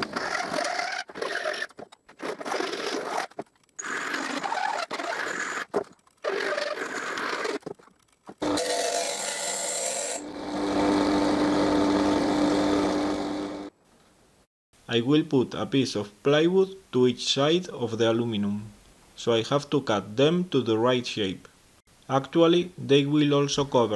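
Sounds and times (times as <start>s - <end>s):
bench grinder motor humming: 8.4s - 13.7s.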